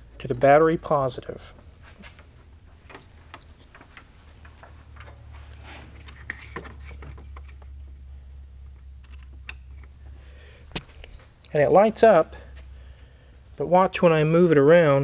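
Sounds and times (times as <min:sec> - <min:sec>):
steady low hum: 0:00.0 - 0:15.0
wire rustling: 0:01.6 - 0:11.8.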